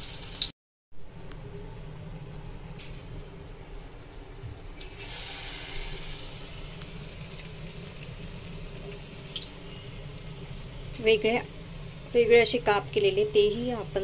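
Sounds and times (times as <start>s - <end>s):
batter sizzling in hot oil: 0.0s - 0.5s, 4.8s - 14.0s.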